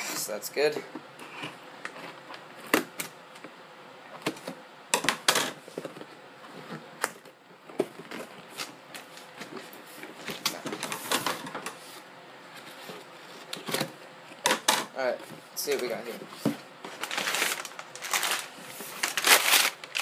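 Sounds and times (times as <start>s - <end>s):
cardboard rustling and scraping: 7.6s - 14.0s, 15.1s - 20.0s.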